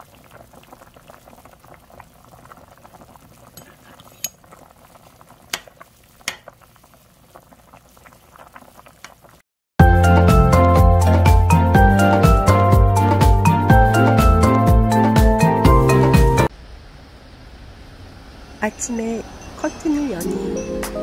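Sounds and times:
stew bubbling: 0.0s - 9.4s.

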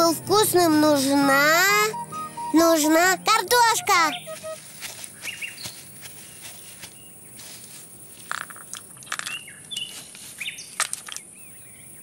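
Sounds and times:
bird chirps: 1.8s - 4.6s, 5.2s - 7.2s.

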